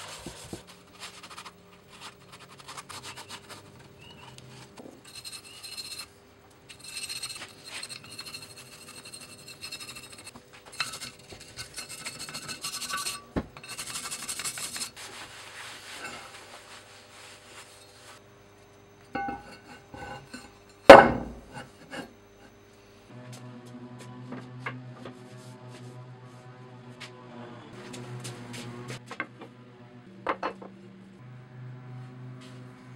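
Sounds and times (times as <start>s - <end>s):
cloth scrubbing metal and wood: 6.8s - 18.2s.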